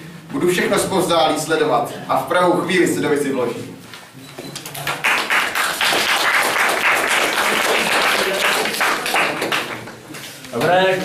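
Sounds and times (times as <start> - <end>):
audience applauding: 4.8 - 10.0.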